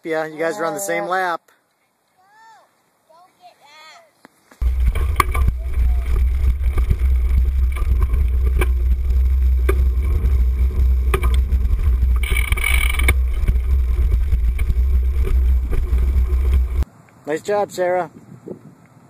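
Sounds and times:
bike rattling over bumps: 4.6 - 16.8
wind buffeting microphone: 4.6 - 16.8, 18.1 - 18.8.

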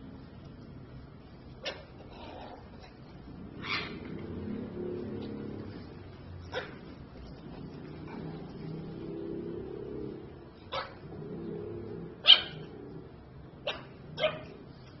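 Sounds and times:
puppy barking: 1.6 - 2.6, 6.4 - 7.0, 10.7 - 11.0, 12.2 - 12.7, 13.6 - 14.6.

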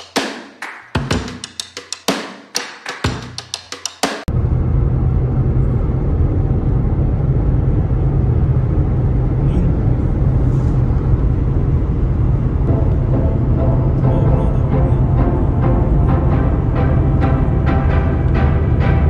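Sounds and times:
car road and wind noise: 4.3 - 12.7
strong low hum: 4.3 - 19.0.

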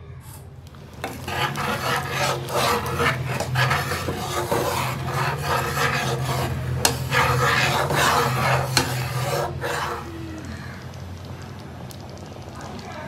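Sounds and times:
rasping rubbing strokes: 1.0 - 10.6.

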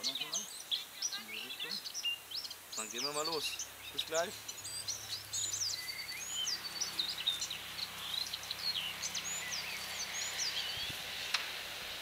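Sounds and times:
songbirds chirping: 0.0 - 12.0
steady outdoor hiss: 0.0 - 12.0.

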